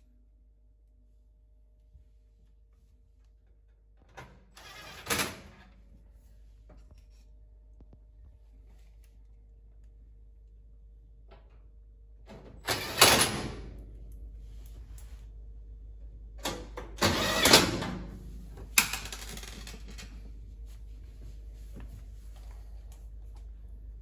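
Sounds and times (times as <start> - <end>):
cordless drill driving screws: 17.1 - 17.5.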